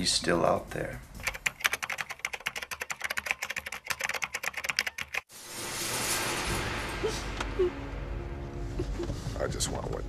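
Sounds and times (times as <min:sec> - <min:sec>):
rapid typing on keys: 0:01.2 - 0:05.3.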